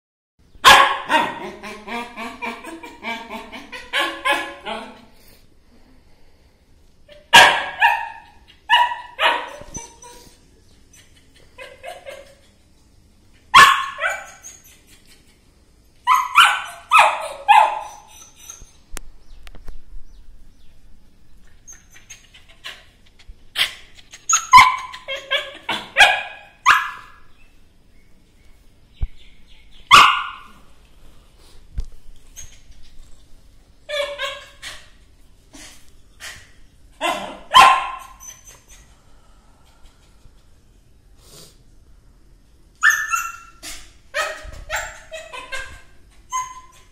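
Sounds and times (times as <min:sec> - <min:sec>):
dog barking: 0:00.6 - 0:01.4, 0:03.9 - 0:05.0, 0:07.3 - 0:09.8, 0:13.6 - 0:14.3, 0:16.1 - 0:17.9, 0:24.5 - 0:27.2, 0:29.9 - 0:30.6, 0:37.0 - 0:38.2.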